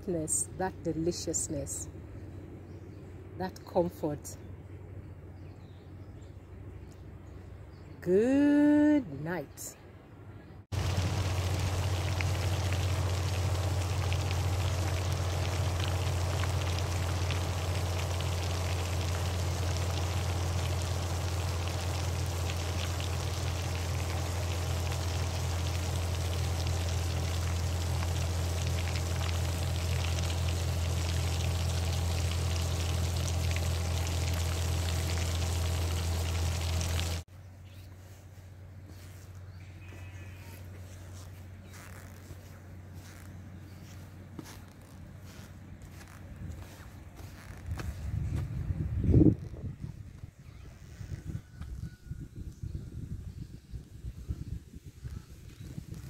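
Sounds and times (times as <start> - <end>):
low rumble: 10.7 - 37.3
runoff water rushing and splashing: 10.7 - 37.3.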